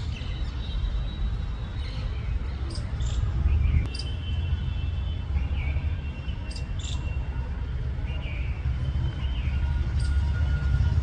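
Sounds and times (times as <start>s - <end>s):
birds chirping: 0.0s - 7.4s.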